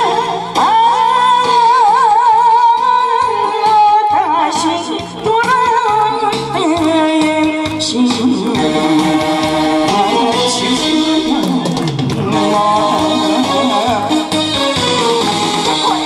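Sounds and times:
woman singing into microphone: 0.0s - 14.1s
backing track music: 0.0s - 16.0s.

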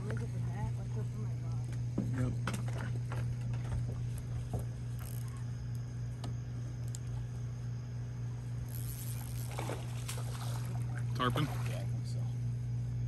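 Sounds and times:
steady low hum: 0.0s - 13.0s
spinning reel being cranked: 4.9s - 5.4s, 8.6s - 10.0s.

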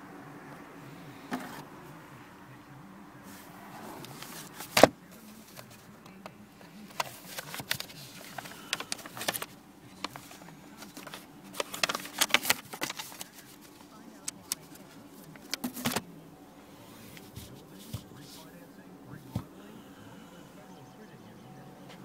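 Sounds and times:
faint low hum: 0.0s - 22.0s
paper envelope rustling: 1.3s - 1.6s, 3.3s - 5.9s, 6.6s - 16.1s.

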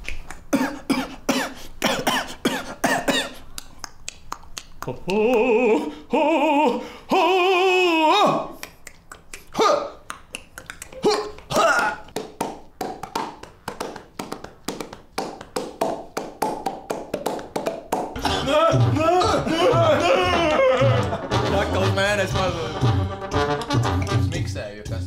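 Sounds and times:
vocal percussion clicks and pops: 3.4s - 5.7s, 8.6s - 18.3s.

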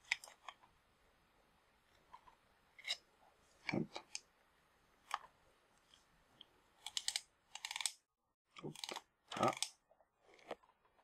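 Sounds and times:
metal lens parts clicking: 6.8s - 8.0s.

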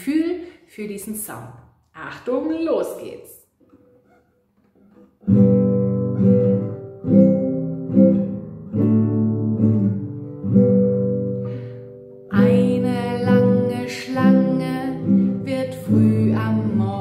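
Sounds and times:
acoustic guitar strummed slowly: 3.7s - 17.0s.

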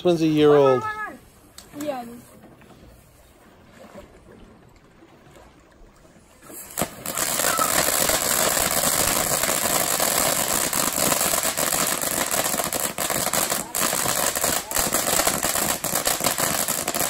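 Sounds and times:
firework igniting pop: 6.6s - 13.3s.

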